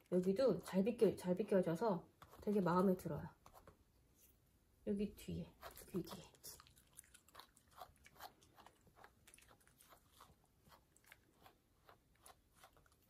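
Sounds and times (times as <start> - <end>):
brush scratching through fur: 5.5 - 6.2.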